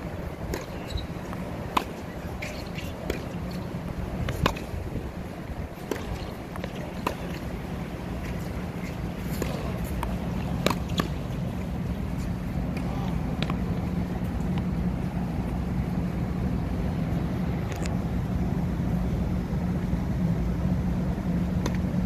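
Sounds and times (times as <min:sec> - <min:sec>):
steady low hum: 0:00.0 - 0:22.0
tennis ball hit with racket: 0:00.4 - 0:11.5
ball bouncing on hard court: 0:00.5 - 0:04.7, 0:05.8 - 0:07.5, 0:08.4 - 0:11.2.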